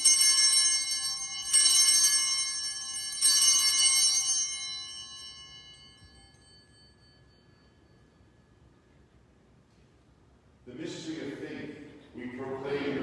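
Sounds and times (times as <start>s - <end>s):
altar bells ringing: 0.0s - 9.3s.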